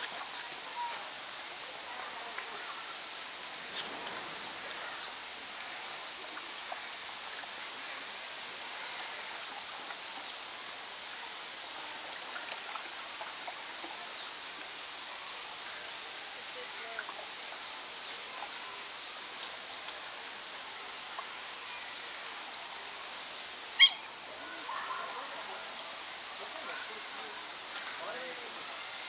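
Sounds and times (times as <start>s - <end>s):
water rushing over rocks: 0.0s - 29.0s.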